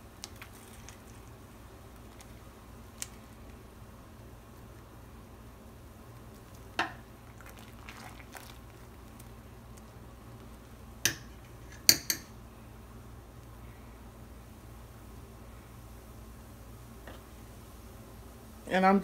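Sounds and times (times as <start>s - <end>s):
boiling water: 0.0s - 19.0s
metal spoon clinking on pot: 11.1s - 12.3s.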